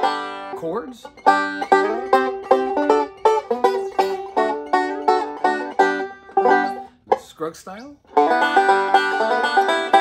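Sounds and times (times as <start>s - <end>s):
banjo chords plucked: 0.0s - 10.0s.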